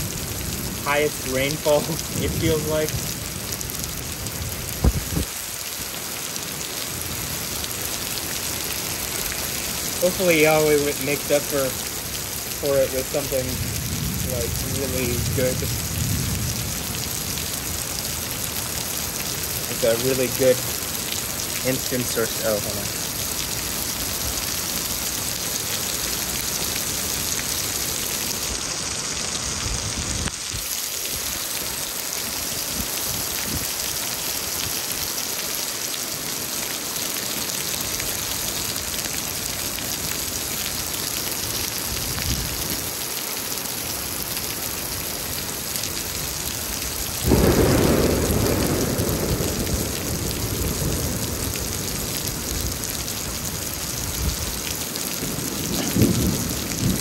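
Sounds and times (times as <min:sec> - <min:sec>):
heavy rain pouring: 0:00.0 - 0:57.0
thunder clap and rumble: 0:00.4 - 0:03.2, 0:04.2 - 0:05.4, 0:13.0 - 0:17.8, 0:47.1 - 0:57.0.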